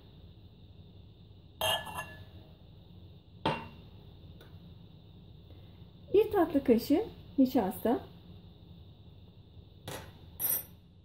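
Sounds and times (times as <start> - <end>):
glass and ceramic kitchenware clinking: 1.6 - 2.3.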